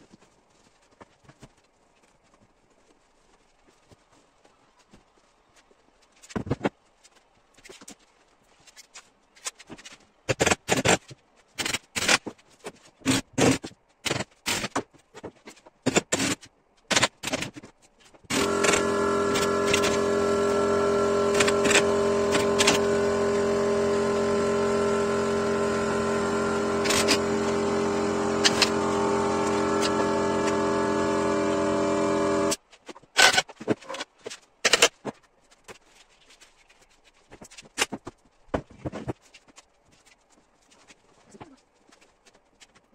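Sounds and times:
electric motor humming: 18.3s - 32.6s.

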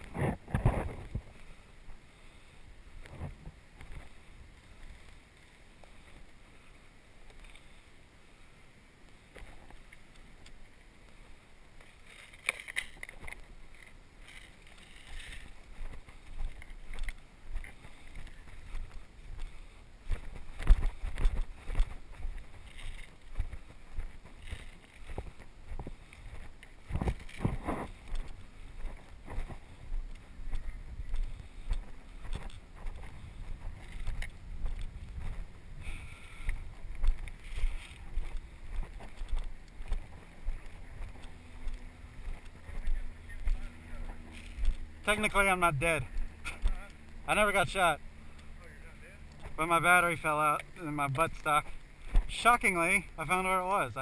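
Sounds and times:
wind thumps on microphone: 0.0s - 1.4s, 25.1s - 44.8s
footsteps through undergrowth: 0.0s - 7.9s, 9.2s - 54.0s
plants brushing and rustling: 9.2s - 54.0s.

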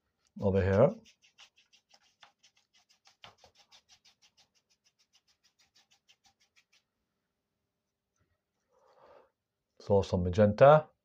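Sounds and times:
paintbrush scratching on canvas: 0.4s - 7.0s.

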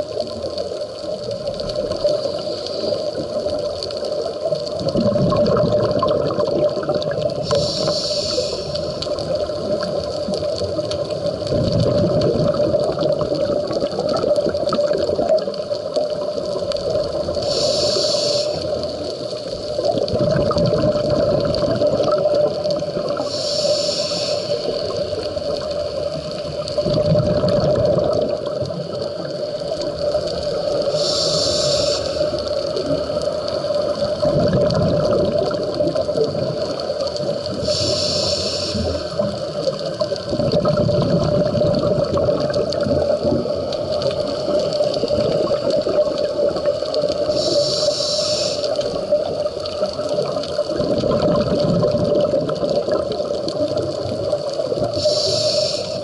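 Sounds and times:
exhaled bubbles gushing: 0.0s - 18.0s, 18.6s - 23.6s, 24.6s - 47.8s, 48.7s - 56.0s
regulator inhalation hiss: 2.0s - 3.7s, 7.4s - 9.6s, 17.2s - 19.7s, 22.8s - 26.6s, 29.2s - 33.5s, 36.6s - 39.7s, 45.9s - 49.3s, 54.8s - 56.0s.

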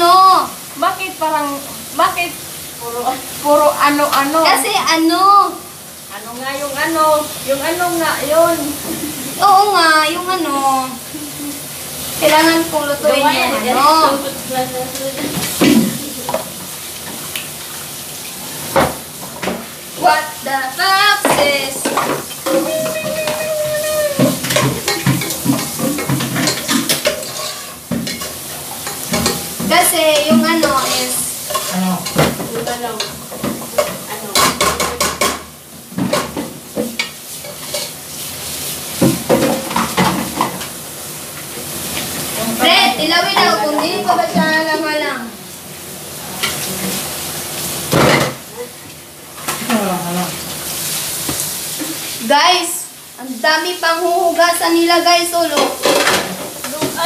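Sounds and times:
woman's voice: 0.0s - 11.6s, 12.2s - 16.3s, 20.0s - 24.3s, 29.6s - 33.2s, 42.4s - 45.4s, 52.2s - 55.8s, 56.6s - 57.0s
food sizzling in a pot: 0.0s - 57.0s
metal spatula scraping a pot: 24.4s - 29.5s, 30.4s - 32.2s.

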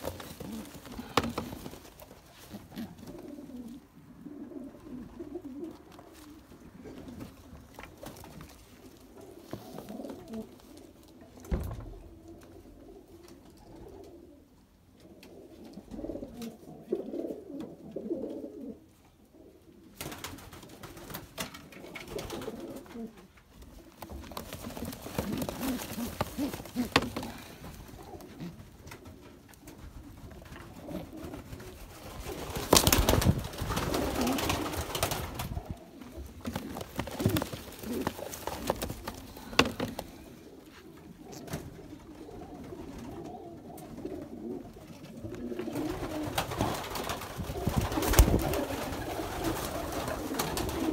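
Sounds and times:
rustling and knocking in wooden crate: 0.0s - 2.0s, 24.2s - 27.8s, 36.4s - 40.1s
pigeons cooing: 0.0s - 20.0s, 21.7s - 50.9s.

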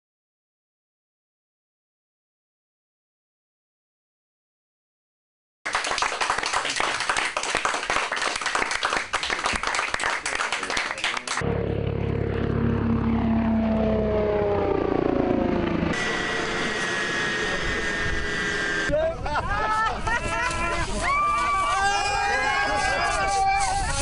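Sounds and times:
helicopter rough rushing noise: 11.3s - 21.6s
helicopter engine and propeller whine: 11.4s - 20.2s.

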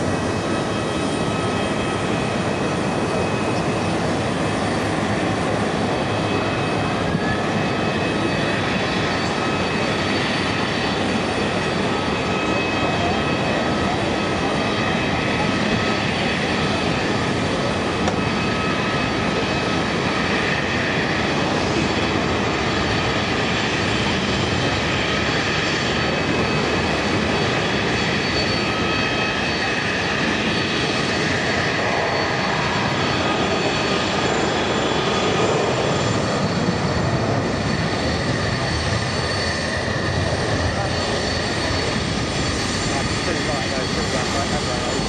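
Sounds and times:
jet engines running: 0.0s - 45.0s.

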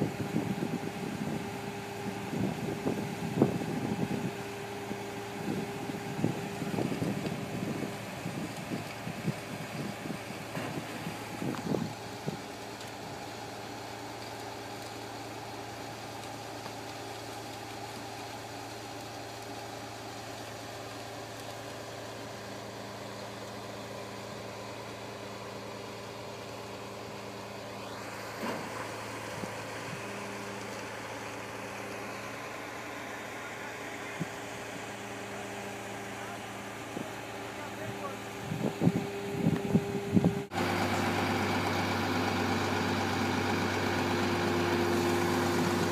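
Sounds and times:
diesel engine running: 0.0s - 45.9s
rising mechanical whine: 26.2s - 45.9s.

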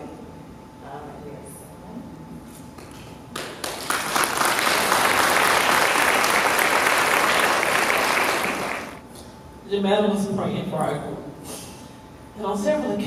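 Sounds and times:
audience applauding: 3.4s - 9.0s.

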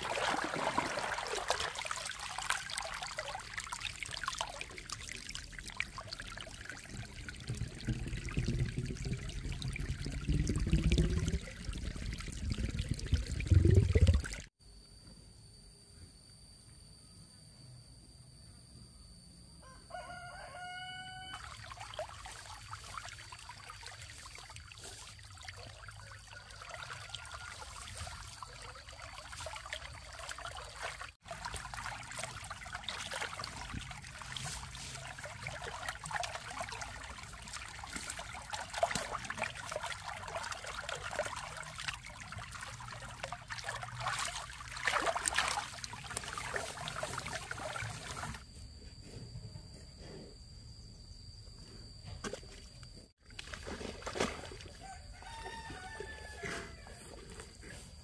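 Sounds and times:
rooster crowing: 19.6s - 21.6s, 26.3s - 28.0s, 54.8s - 57.1s.

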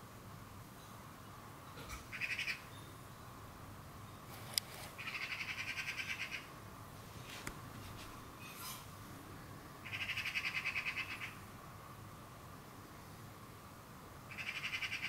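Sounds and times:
magpie chattering: 2.1s - 2.6s, 5.0s - 6.5s, 9.8s - 11.4s, 14.3s - 15.0s.

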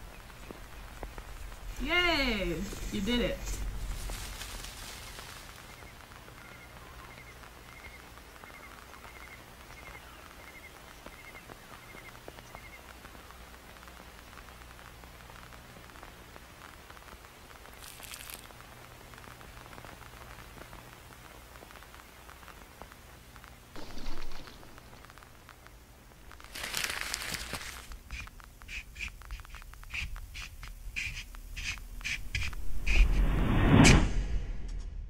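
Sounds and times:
low hum: 0.0s - 10.0s, 29.2s - 35.0s
steady crackle: 0.0s - 35.0s
small chirp: 4.8s - 13.2s.

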